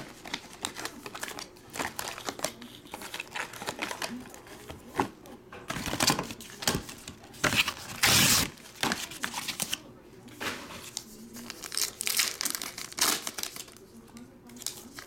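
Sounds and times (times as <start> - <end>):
foil wrapper crinkling: 0.0 - 4.5, 10.8 - 13.8.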